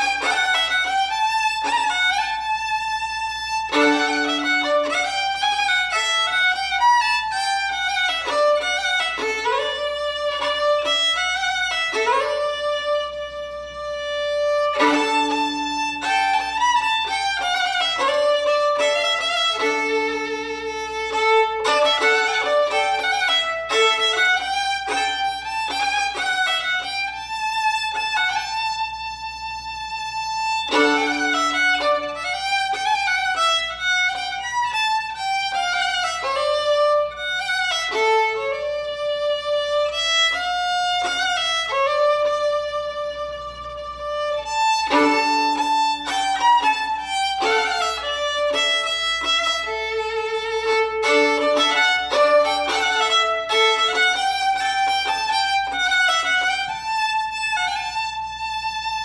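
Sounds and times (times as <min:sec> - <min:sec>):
solo fiddle melody: 0:00.0 - 0:59.0.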